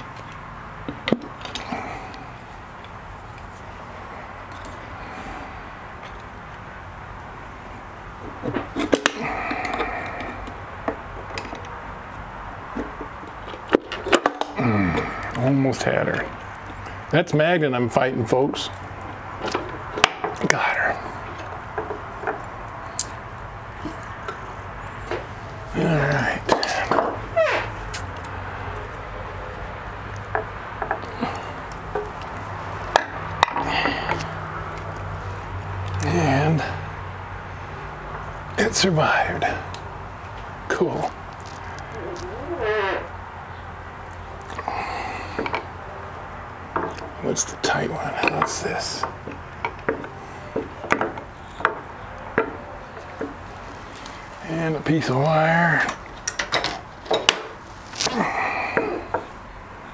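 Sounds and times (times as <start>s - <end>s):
steady low hum: 0.0s - 56.3s
short strained squeak: 27.3s - 27.8s, 41.9s - 43.2s.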